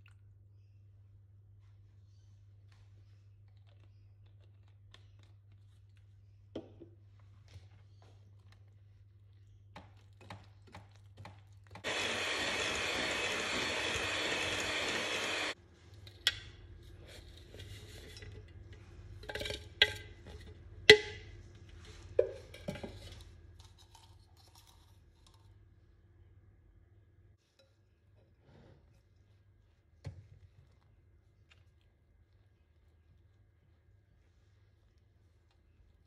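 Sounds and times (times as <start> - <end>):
electric hand mixer running: 11.8 - 15.6.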